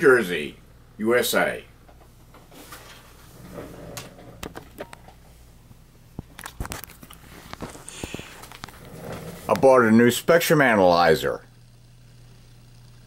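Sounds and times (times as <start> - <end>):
low electrical hum: 0.0 - 13.0
camera handling clicks and rubs: 6.2 - 8.8.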